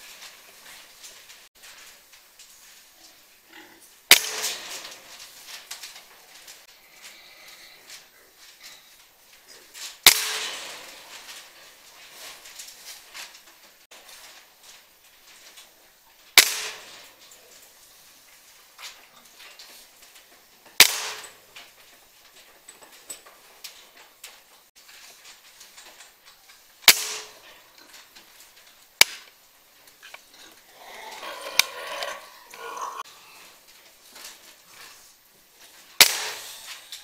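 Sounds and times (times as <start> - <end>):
air rifle shots: 4.1 - 4.8, 10.0 - 10.8, 16.4 - 17.0, 20.8 - 21.3, 26.9 - 27.4, 36.0 - 36.6.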